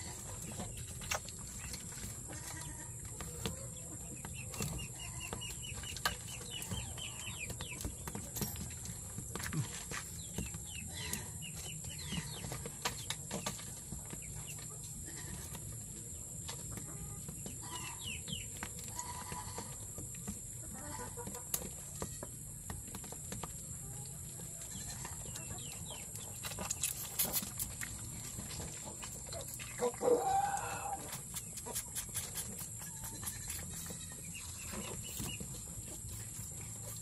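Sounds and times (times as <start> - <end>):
chickens clucking: 0.0 - 37.0
goat kids feeding at bottle: 0.0 - 37.0.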